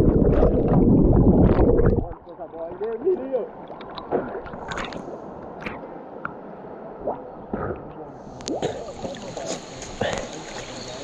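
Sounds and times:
water splashing on lens: 0:00.0 - 0:02.2, 0:02.8 - 0:06.4
river water lapping and gurgling: 0:00.0 - 0:11.0
steady high hiss: 0:08.2 - 0:11.0.

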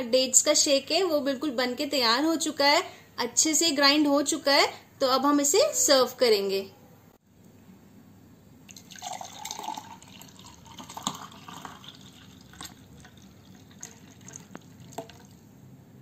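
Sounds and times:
milkshake pouring into glass: 0:08.6 - 0:15.5.

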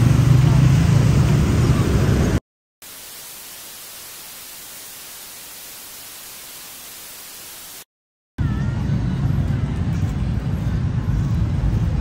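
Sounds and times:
street traffic: 0:00.0 - 0:02.4, 0:08.4 - 0:12.0
static hiss: 0:02.8 - 0:07.9.

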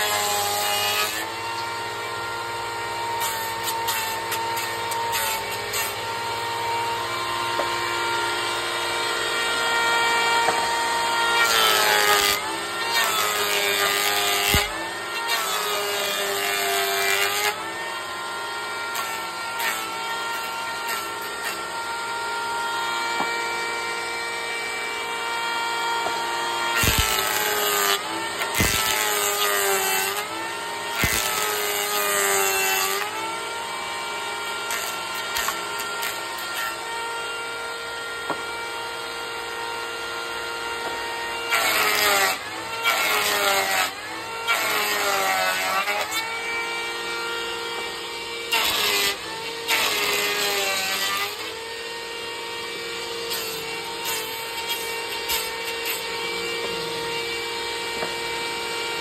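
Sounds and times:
planer rasping cut through wood: 0:00.0 - 0:59.0
planer motor hum: 0:01.1 - 0:16.2, 0:51.4 - 0:59.0.

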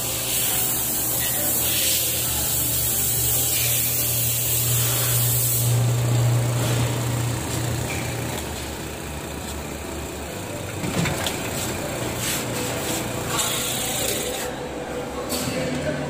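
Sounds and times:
air hissing from machinery: 0:00.0 - 0:09.3, 0:11.5 - 0:14.6
low electric motor hum: 0:00.0 - 0:16.0.

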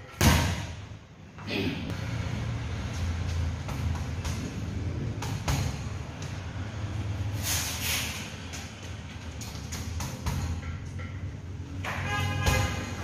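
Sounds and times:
boxing gloves hitting bag: 0:00.2 - 0:00.8, 0:05.2 - 0:05.9.

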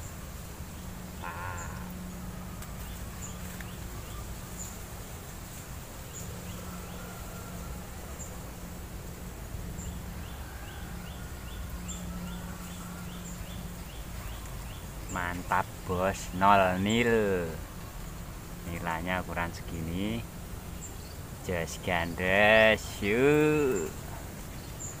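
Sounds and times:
high insect chirp: 0:00.0 - 0:07.4
harsh bird call: 0:01.2 - 0:02.6, 0:21.5 - 0:24.0.

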